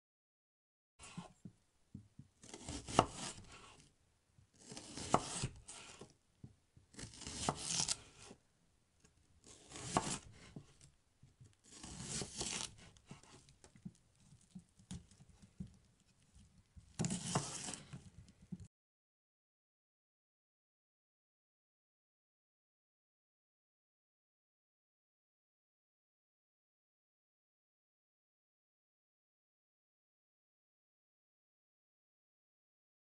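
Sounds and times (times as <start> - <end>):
knife sawing through salami: 2.4 - 3.8, 4.6 - 6.1, 6.9 - 8.4, 9.4 - 10.7, 11.6 - 13.4, 17.0 - 18.0.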